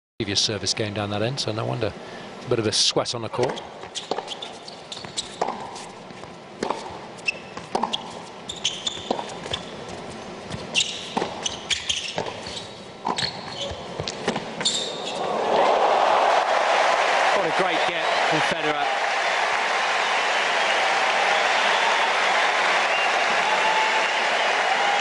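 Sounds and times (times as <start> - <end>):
shoes squeaking: 3.4 - 15.3
ball bouncing: 5.0 - 5.7, 6.6 - 6.9, 7.5 - 8.0, 8.8 - 9.7, 10.5 - 12.4, 13.0 - 14.5
racket striking tennis ball: 6.6 - 7.0, 7.6 - 8.2, 8.9 - 9.6
crowd cheering: 15.0 - 25.0.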